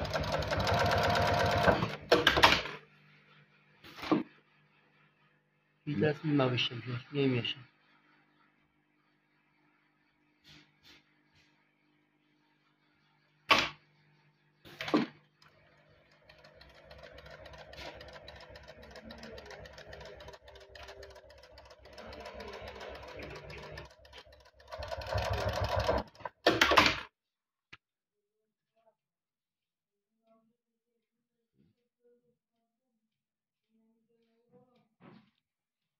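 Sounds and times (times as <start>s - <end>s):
sewing machine stitching: 0.0s - 2.7s, 14.7s - 27.0s.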